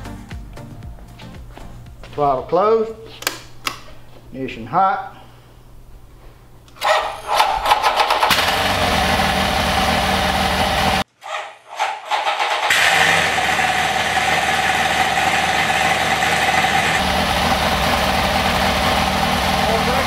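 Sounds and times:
aircraft engine running rough: 0:12.7 - 0:20.0.

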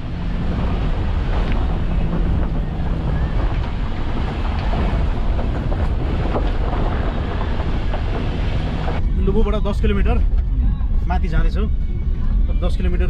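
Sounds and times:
gravel knocking under tyres: 0:00.0 - 0:09.0
wind buffeting microphone: 0:00.0 - 0:10.6
car driving on dirt road: 0:00.0 - 0:13.0.

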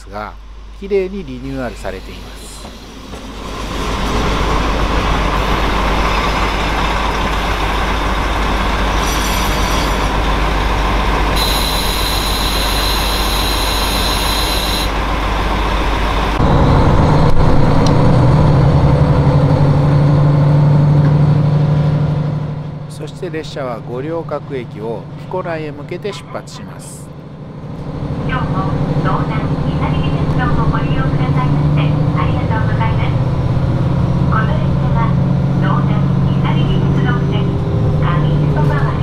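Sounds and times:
diesel engine drone: 0:00.0 - 0:39.0
diesel railcar rolling: 0:00.0 - 0:39.0
high brake squeal: 0:09.0 - 0:10.2, 0:11.4 - 0:15.0.

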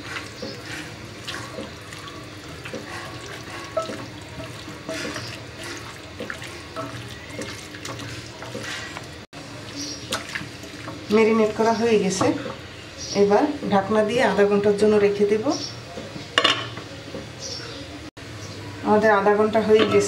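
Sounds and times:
wet squelches of kneading meat: 0:00.0 - 0:11.6.

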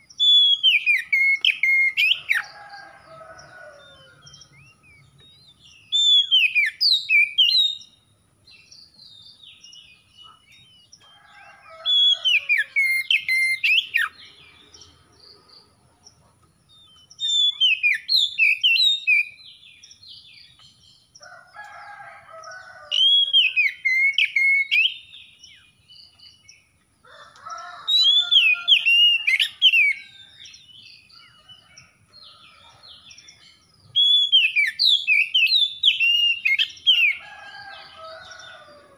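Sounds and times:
bird whistled song: 0:00.0 - 0:02.5, 0:04.4 - 0:08.0, 0:11.8 - 0:14.2, 0:16.9 - 0:19.4, 0:23.0 - 0:25.4, 0:33.9 - 0:37.2.

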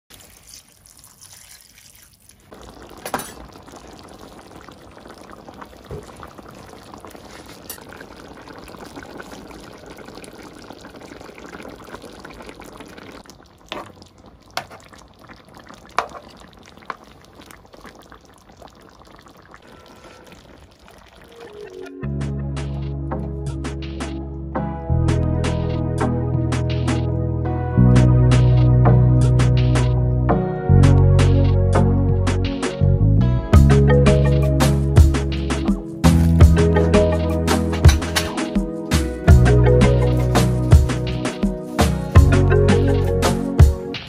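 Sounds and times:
liquid pouring into pan: 0:00.1 - 0:21.8
stew bubbling: 0:00.1 - 0:21.9, 0:33.6 - 0:44.0.

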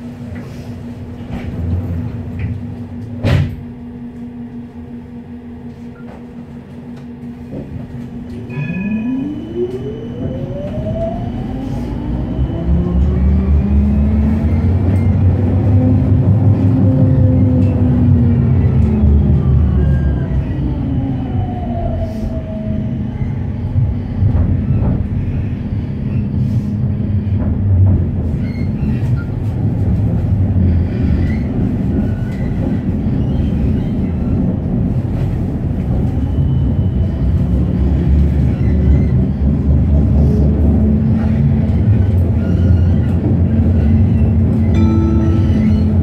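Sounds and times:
tram wheels rumbling: 0:00.0 - 0:46.0
short falling whine: 0:08.3 - 0:13.2.

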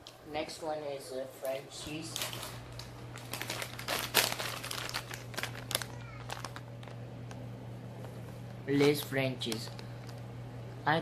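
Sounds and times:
foil crisp packet crinkling: 0:01.4 - 0:07.4, 0:08.0 - 0:10.2.

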